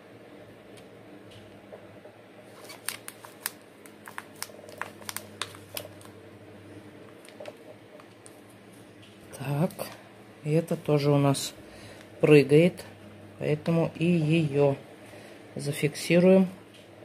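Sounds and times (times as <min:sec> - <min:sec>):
plastic pot crackling and clicking: 0:02.5 - 0:06.1, 0:07.1 - 0:08.4.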